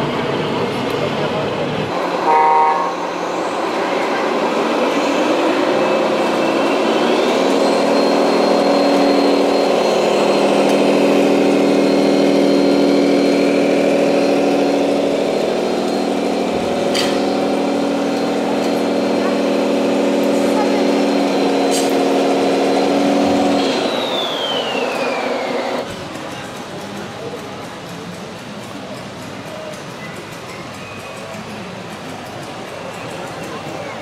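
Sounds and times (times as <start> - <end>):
electronic diesel engine sound: 1.9 - 25.9.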